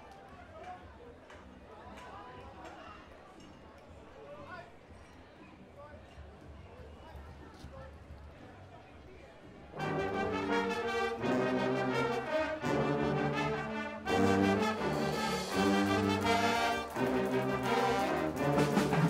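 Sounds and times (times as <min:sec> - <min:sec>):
brass band playing: 0:09.8 - 0:19.0
drums: 0:12.8 - 0:19.0.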